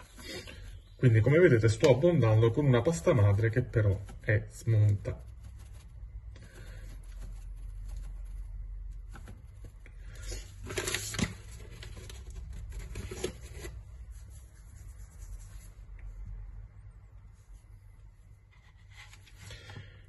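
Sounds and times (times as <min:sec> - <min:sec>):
paper bag rustling: 0:09.1 - 0:13.8.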